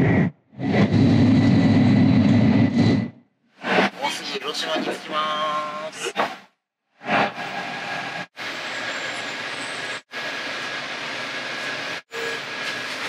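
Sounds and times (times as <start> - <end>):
train running noise: 7.0 - 13.0.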